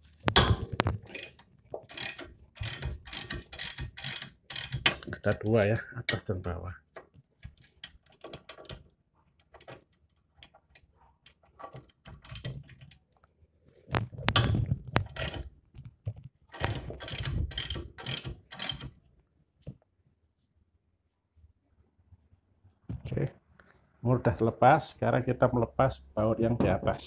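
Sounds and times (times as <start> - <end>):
socket ratchet clicking: 1.1 - 5.4, 16.6 - 19.0.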